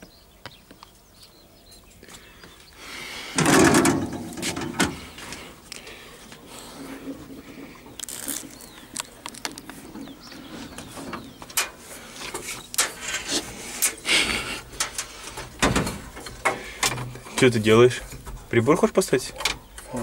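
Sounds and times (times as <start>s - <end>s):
bird chirps: 0.0s - 3.0s, 7.6s - 13.0s, 19.2s - 20.0s
clicks and knocks of handling: 7.9s - 14.0s, 14.8s - 18.5s.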